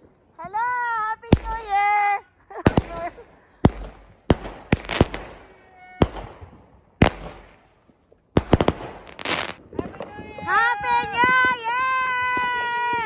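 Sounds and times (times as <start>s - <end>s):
fireworks exploding: 1.3s - 1.9s, 2.6s - 11.6s.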